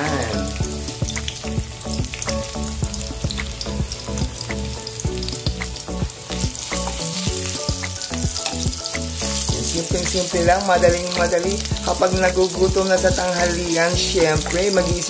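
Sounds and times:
garlic sizzling in hot oil: 0.0 - 15.0.

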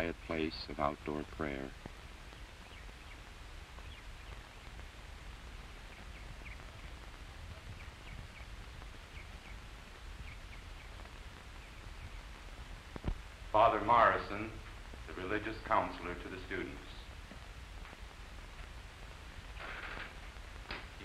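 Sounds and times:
film soundtrack hiss and hum: 0.0 - 21.0
faint bird chirps: 0.8 - 4.8, 5.6 - 12.5.

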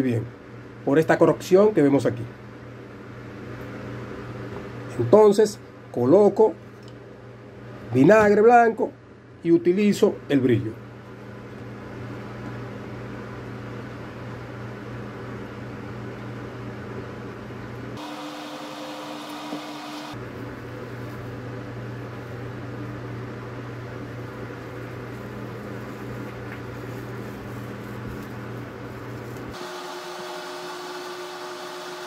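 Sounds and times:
machine hum with hiss: 17.7 - 32.0.

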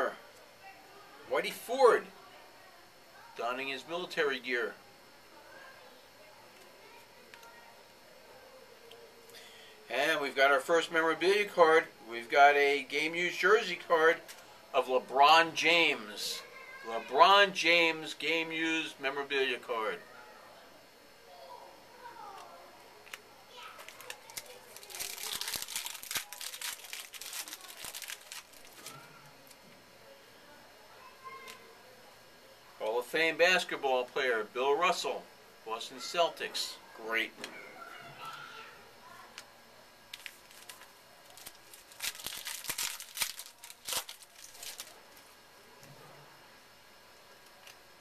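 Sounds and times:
wrapper crinkling and tearing: 23.8 - 29.6, 40.1 - 45.3.

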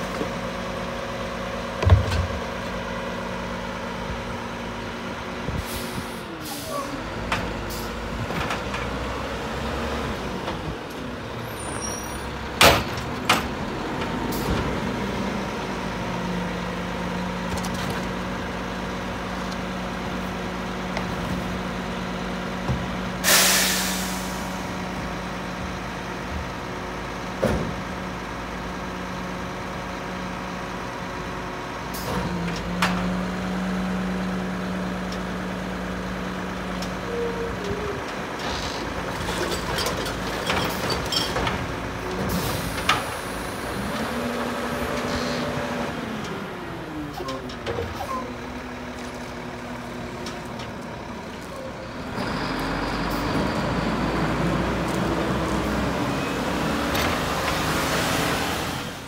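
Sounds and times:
garbage truck diesel engine: 0.0 - 59.0
air brake hiss: 23.2 - 24.6.

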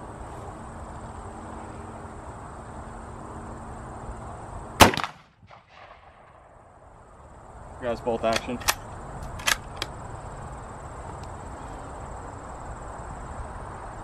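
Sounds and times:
rifle shot with echoes: 4.8 - 6.6.

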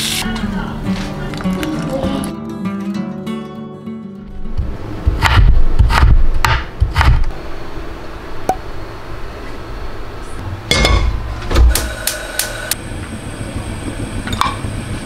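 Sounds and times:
knife chopping on cutting board: 5.1 - 7.2.

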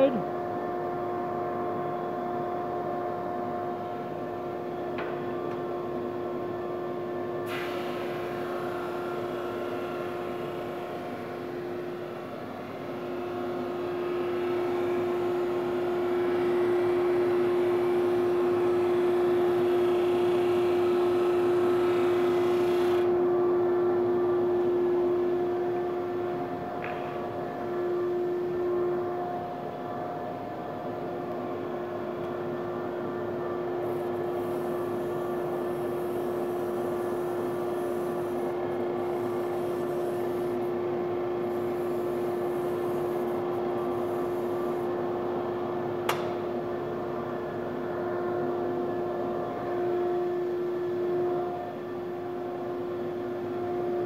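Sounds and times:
drum sander humming: 7.4 - 46.0.

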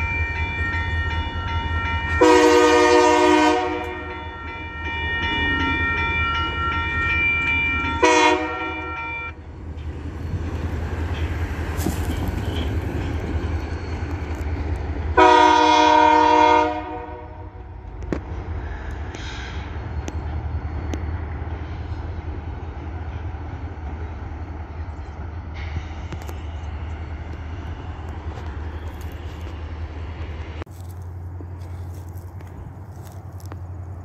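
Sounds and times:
crossing signal bell ringing: 0.0 - 14.4
low rumble of train: 0.0 - 34.0
locomotive horn blasts: 2.1 - 4.9, 8.0 - 9.4, 15.2 - 17.6.

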